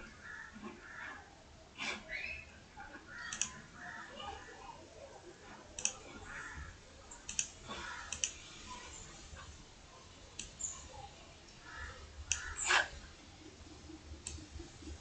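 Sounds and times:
computer mouse clicking: 0:03.2 - 0:03.6, 0:07.2 - 0:08.4, 0:12.3 - 0:12.5.

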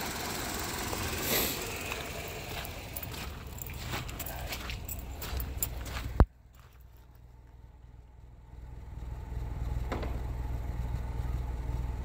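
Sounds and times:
car engine idling exhaust drone: 0:00.0 - 0:12.0
sharp thump: 0:09.9 - 0:10.2.

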